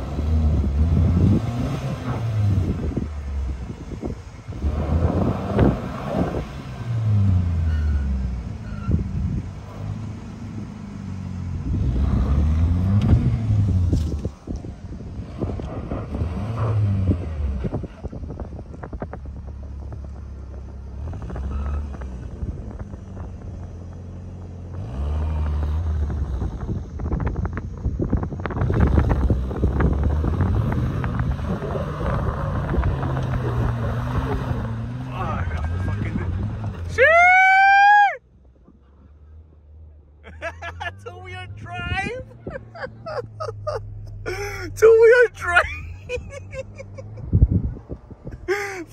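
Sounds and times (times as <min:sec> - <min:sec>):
off-road engine revving hard: 0:00.0 - 0:03.5, 0:04.5 - 0:10.0, 0:10.6 - 0:14.1, 0:15.2 - 0:18.0, 0:24.7 - 0:26.8, 0:28.6 - 0:37.0
wind buffeting microphone: 0:00.0 - 0:07.3, 0:12.9 - 0:35.1, 0:41.8 - 0:43.8, 0:45.7 - 0:48.6
vehicle engine running: 0:38.2 - 0:48.9.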